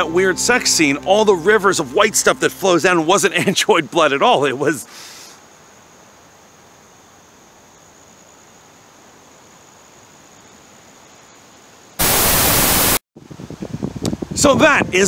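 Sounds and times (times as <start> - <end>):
high insect drone: 0.0 - 13.0
faint outdoor hiss: 0.0 - 15.0
loud white-noise static: 12.0 - 13.0.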